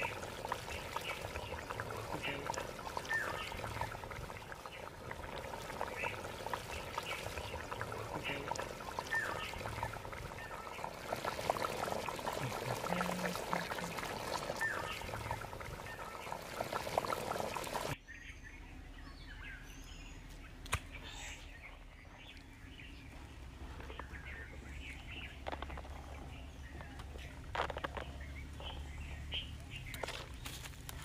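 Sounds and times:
curry bubbling in a pot: 0:00.0 - 0:18.0
bird chirps: 0:18.0 - 0:30.7.

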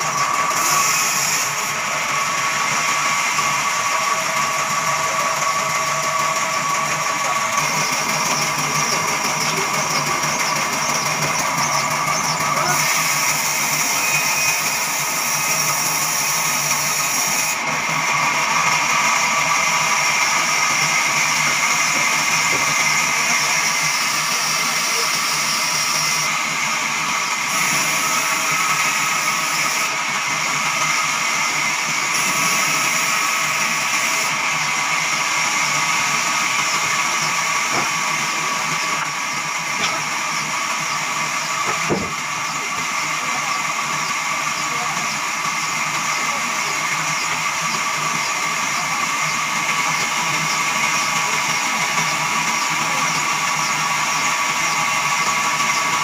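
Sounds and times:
band saw cutting wood: 0:00.0 - 0:56.0.

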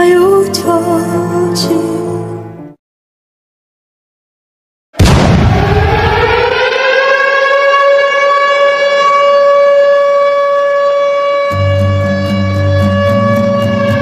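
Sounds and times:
low rumble: 0:05.0 - 0:06.9
air-raid siren wailing: 0:05.3 - 0:14.0.

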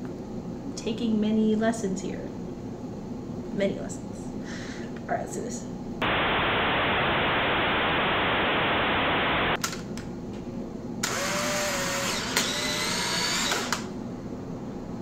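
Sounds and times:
loud steady hiss: 0:06.0 - 0:09.6
camera motor whirring: 0:11.0 - 0:13.9.

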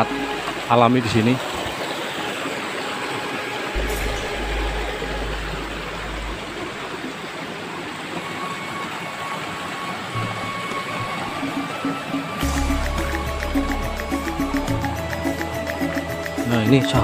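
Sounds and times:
stream rushing over rocks: 0:00.0 - 0:16.2
low rumble: 0:03.8 - 0:07.3.

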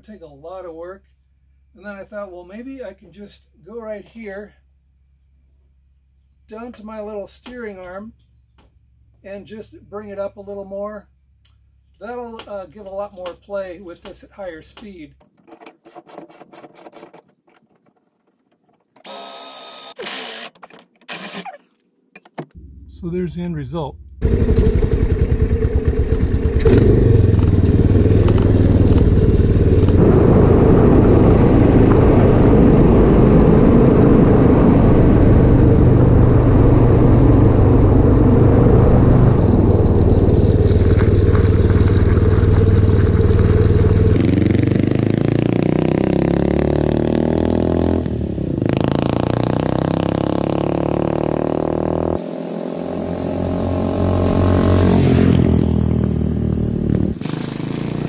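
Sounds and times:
trike engine running: 0:24.0 - 0:45.6
road and wind noise: 0:24.1 - 0:58.0.

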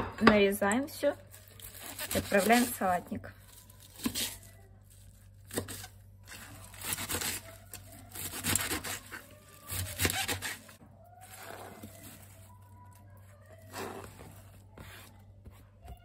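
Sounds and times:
knife slicing cabbage on board: 0:08.1 - 0:10.8.

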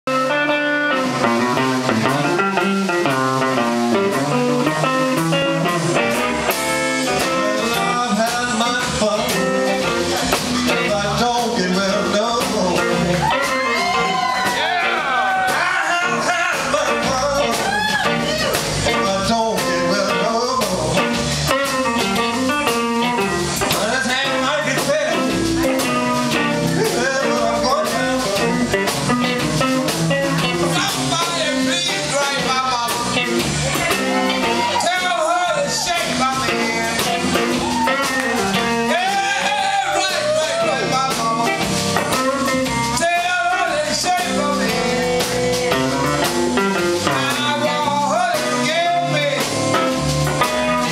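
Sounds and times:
bass: 0:00.0 - 0:50.9
drums: 0:00.0 - 0:50.9
electric guitars: 0:00.1 - 0:50.9.

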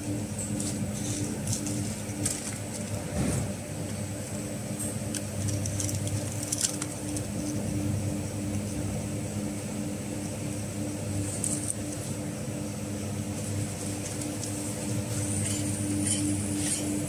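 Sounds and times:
packing machine pulsing hum: 0:00.0 - 0:17.0.

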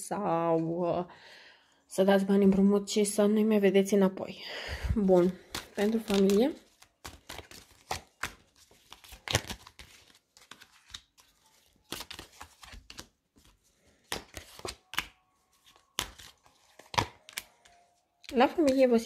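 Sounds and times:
cards shuffling and slapping: 0:05.1 - 0:18.9.

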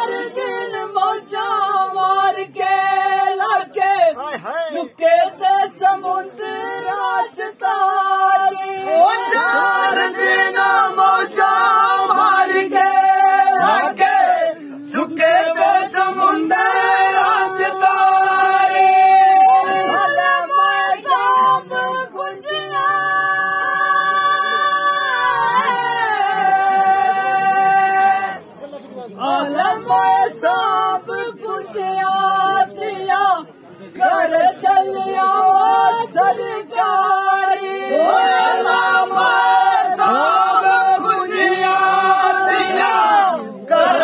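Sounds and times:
men singing folk song: 0:05.0 - 0:23.2, 0:34.0 - 0:44.0.

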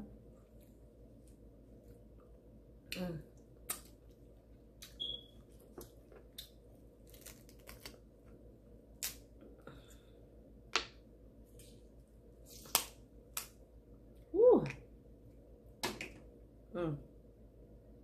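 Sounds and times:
crab shells cracking: 0:07.0 - 0:08.0.

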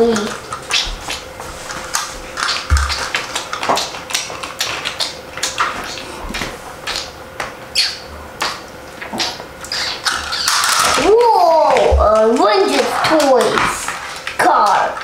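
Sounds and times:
plastic toys clattering: 0:10.0 - 0:15.0.

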